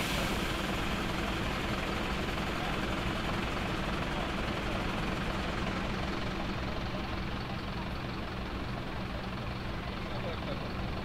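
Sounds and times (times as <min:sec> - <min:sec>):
diesel engines idling: 0:00.0 - 0:11.0.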